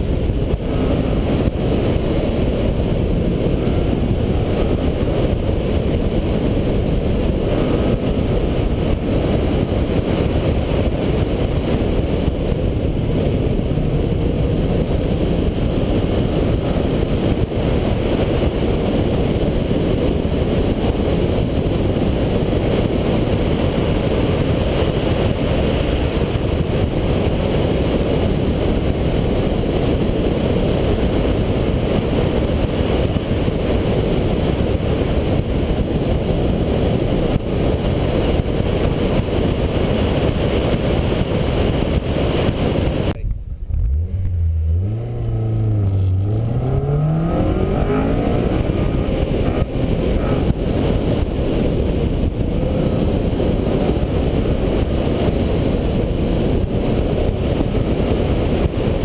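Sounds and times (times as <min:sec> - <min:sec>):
wind and road noise: 0:00.0 - 0:59.0
car engine revving: 0:43.1 - 0:57.4.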